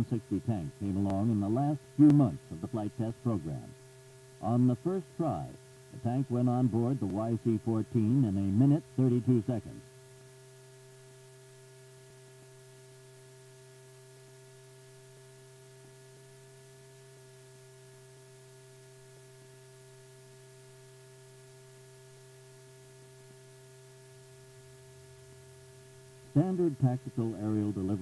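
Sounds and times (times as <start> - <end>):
faint electrical hum: 0.0 - 28.0.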